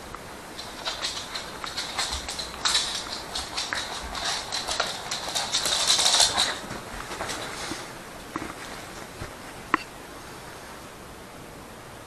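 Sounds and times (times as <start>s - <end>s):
dog chewing rope: 0.4s - 7.8s
dog scuffling on hard floor: 0.5s - 9.5s.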